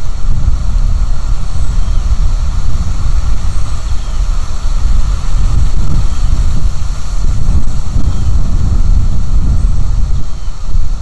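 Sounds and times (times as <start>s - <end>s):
wind buffeting microphone: 0.0s - 11.0s
faint high bird chirps: 10.1s - 10.8s.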